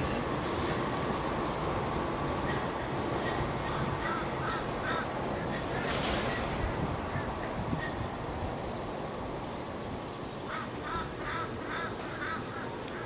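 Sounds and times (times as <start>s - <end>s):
bird harsh calls: 2.4s - 8.1s.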